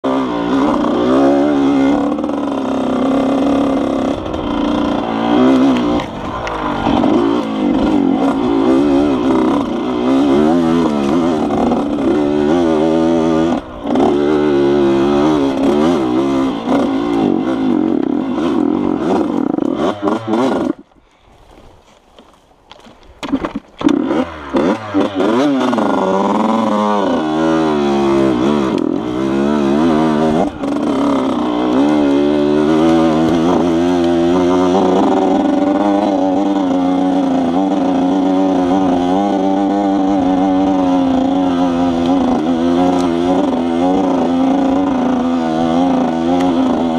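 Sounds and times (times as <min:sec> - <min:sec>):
dirt bike engine revving: 0:00.0 - 0:20.9, 0:23.2 - 0:46.9
engine sputters: 0:00.3 - 0:20.9, 0:22.8 - 0:46.9.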